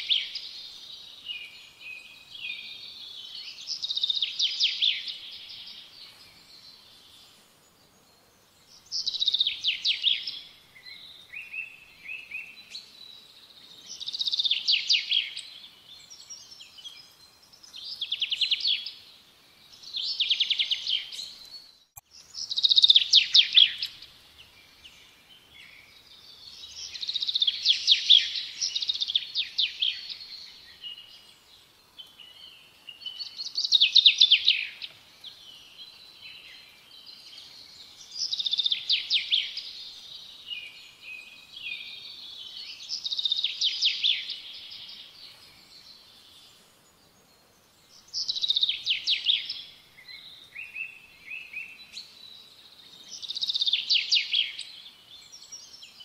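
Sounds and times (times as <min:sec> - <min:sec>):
songbird trilling: 0:22.4 - 0:24.1.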